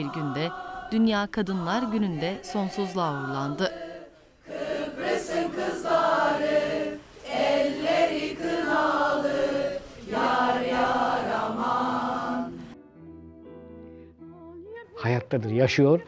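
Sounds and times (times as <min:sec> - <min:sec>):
women singing together: 0:00.0 - 0:12.8.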